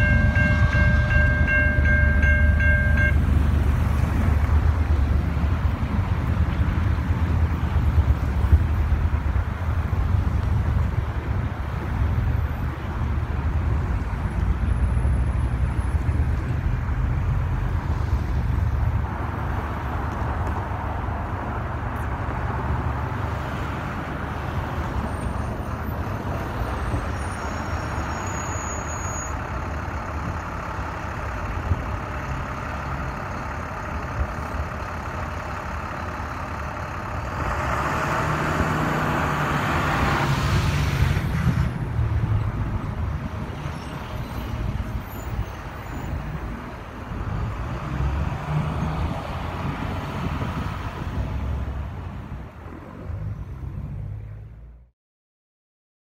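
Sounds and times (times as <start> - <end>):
freight train rumbling past: 0.0 - 11.4.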